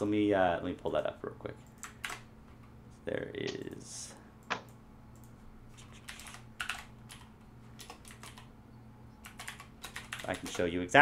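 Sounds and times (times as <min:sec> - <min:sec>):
faint low hum: 0:00.0 - 0:11.0
typing on computer keyboard: 0:01.7 - 0:02.2, 0:05.2 - 0:08.5, 0:09.2 - 0:10.7.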